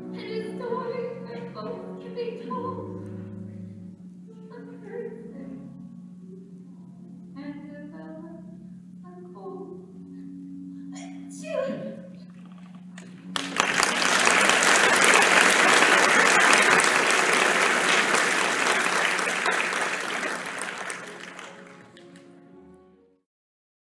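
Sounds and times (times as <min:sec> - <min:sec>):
held musical note: 0:13.0 - 0:23.0
audience applause: 0:13.3 - 0:22.3.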